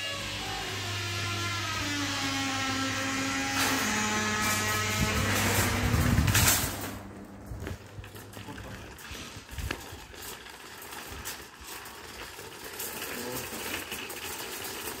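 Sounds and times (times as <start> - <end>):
shopping cart rattling on pavement: 5.1 - 15.0.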